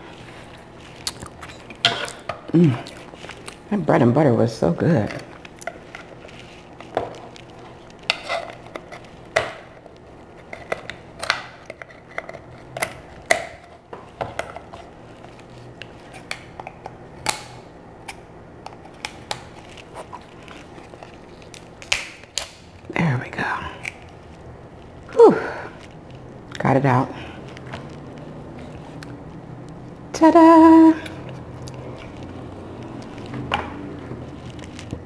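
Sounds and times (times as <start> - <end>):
shears cutting lobster shell: 5.0 - 22.7
shell cracking: 15.8 - 22.8.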